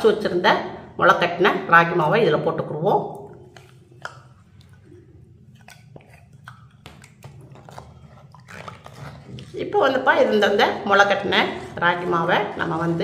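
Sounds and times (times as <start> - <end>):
low steady hum: 0.0 - 13.0
soft wet sounds: 2.9 - 13.0.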